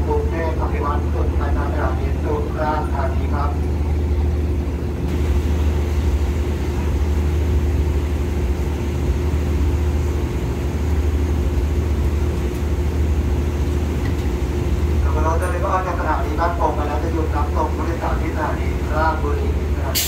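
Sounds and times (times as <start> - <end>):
diesel train engine idling: 0.0 - 20.0.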